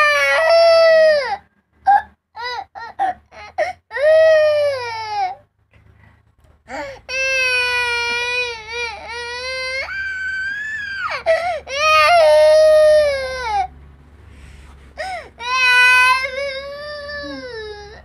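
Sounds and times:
young boy crying: 0:06.7 - 0:13.7, 0:15.0 - 0:18.0.

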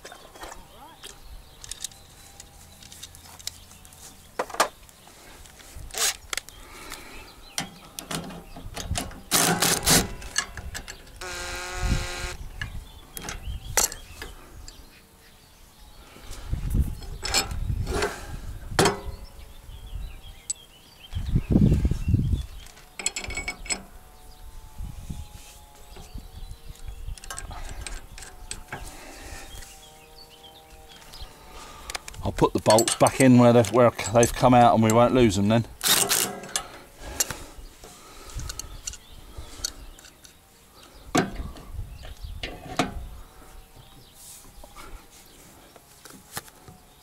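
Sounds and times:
spanner and bolts clinking: 0:23.0 - 0:23.8, 0:32.6 - 0:35.0
clinking metal: 0:32.7 - 0:33.3.

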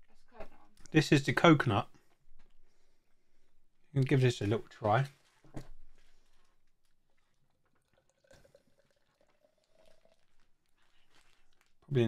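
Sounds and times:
beer pouring into a glass: 0:07.7 - 0:10.8.

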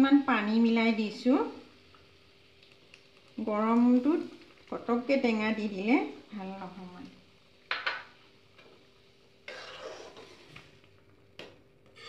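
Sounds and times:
stirring simmering curry: 0:09.5 - 0:10.8.

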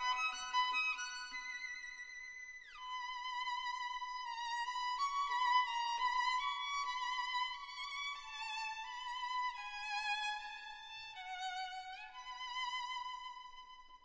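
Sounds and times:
solo violin melody: 0:00.0 - 0:14.0.

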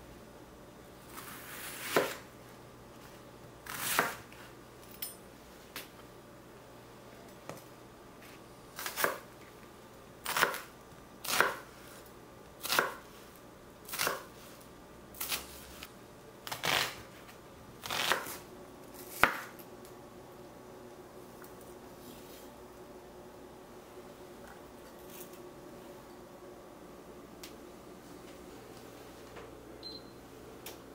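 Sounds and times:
knife cutting onion on board: 0:01.1 - 0:02.2, 0:03.6 - 0:04.3, 0:08.8 - 0:09.2, 0:10.2 - 0:12.0, 0:12.6 - 0:13.1, 0:13.9 - 0:14.5, 0:16.4 - 0:17.1, 0:17.8 - 0:19.6.

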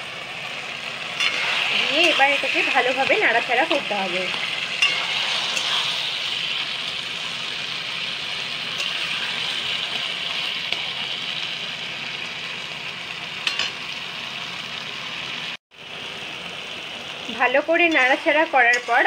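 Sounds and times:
greens sizzling in metal pan: 0:00.0 - 0:19.0
metal spatula stirring: 0:01.1 - 0:07.0, 0:08.8 - 0:11.0, 0:17.9 - 0:19.0.

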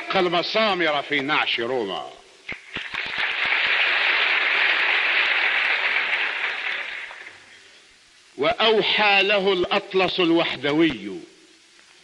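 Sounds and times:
audience applauding: 0:02.6 - 0:07.4.

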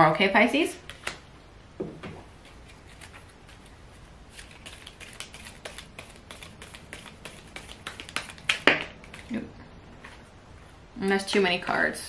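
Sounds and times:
cards being shuffled: 0:02.4 - 0:09.4.

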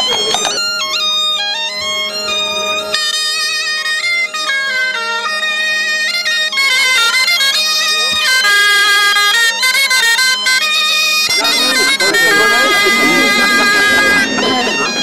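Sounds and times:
bagpipe drone: 0:00.0 - 0:15.0
bombarde melody: 0:00.0 - 0:15.0.

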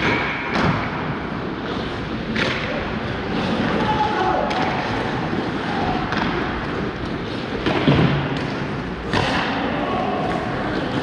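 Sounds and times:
pucks and sticks knocking boards: 0:00.0 - 0:01.2, 0:02.2 - 0:02.9, 0:03.5 - 0:09.7.

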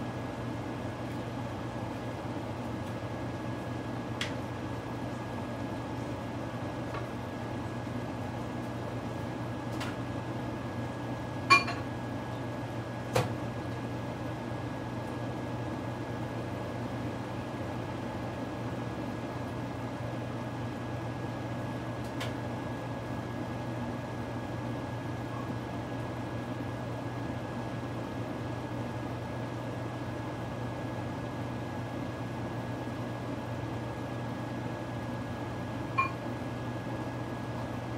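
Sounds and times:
appliance electrical hum and whine: 0:00.0 - 0:37.9
glassy clink: 0:11.5 - 0:11.8.

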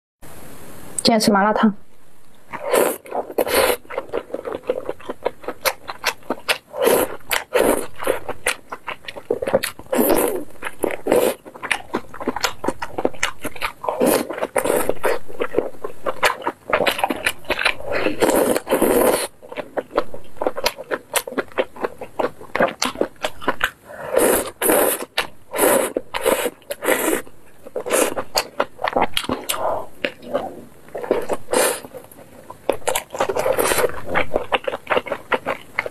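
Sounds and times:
slurping noodles: 0:02.5 - 0:04.9, 0:06.7 - 0:08.6, 0:09.2 - 0:11.4, 0:13.8 - 0:15.7, 0:16.3 - 0:19.4, 0:23.9 - 0:28.5, 0:29.3 - 0:32.1, 0:32.9 - 0:34.2
wet chewing and lip-smacking: 0:02.5 - 0:35.9.

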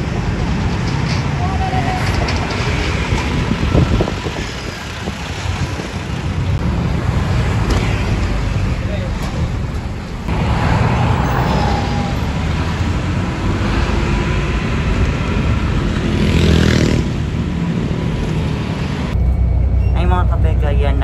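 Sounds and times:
bus engine running: 0:00.0 - 0:16.1
road and traffic noise: 0:00.0 - 0:21.0.

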